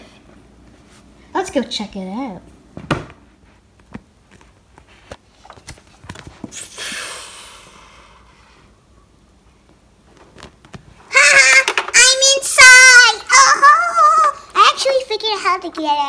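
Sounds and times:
toys tapping and clicking: 11.2 - 12.3.

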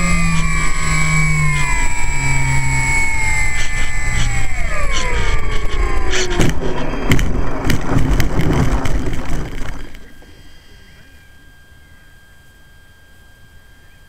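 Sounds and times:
electric motor and propeller whining: 0.0 - 14.0
plane bumping and rattling on grass: 3.2 - 10.0.

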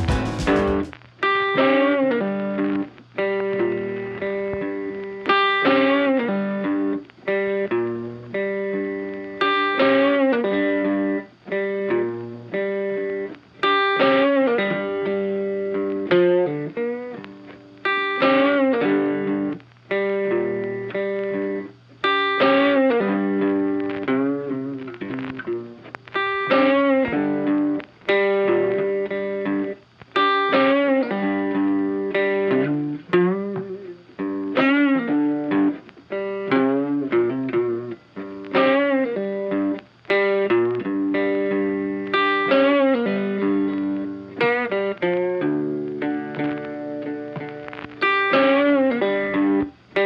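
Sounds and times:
plucked guitar phrase: 0.0 - 2.8.

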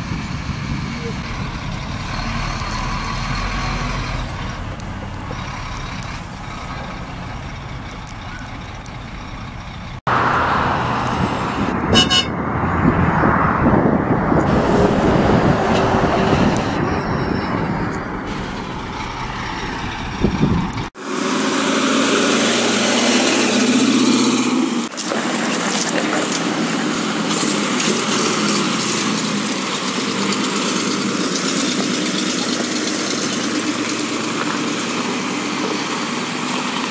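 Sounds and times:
fire truck engines running: 0.0 - 36.9
short horn toot: 11.9 - 12.4.

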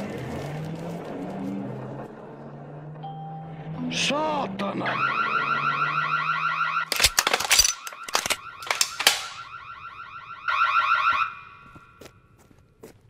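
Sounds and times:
pulsing electronic alarm: 4.8 - 6.9, 7.8 - 12.0
sharp clicks and knocks: 6.9 - 9.4.

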